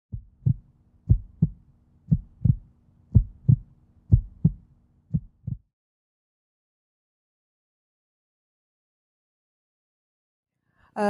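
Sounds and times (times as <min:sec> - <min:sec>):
faint low hum: 0:00.1 - 0:05.6
heartbeat thumps: 0:00.1 - 0:05.6.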